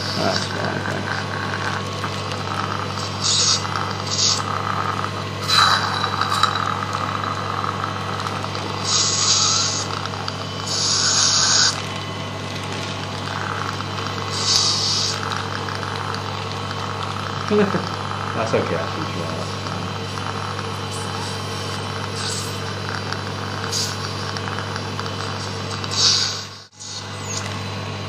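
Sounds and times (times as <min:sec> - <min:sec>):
low hum: 0:00.6 - 0:18.2
suction hissing: 0:03.0 - 0:04.5, 0:08.8 - 0:09.9, 0:10.7 - 0:11.8, 0:14.3 - 0:15.5.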